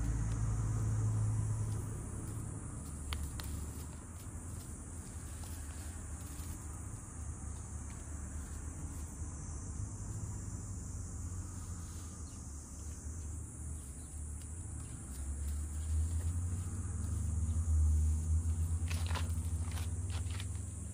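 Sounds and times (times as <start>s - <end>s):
insects trilling: 0.0s - 20.9s.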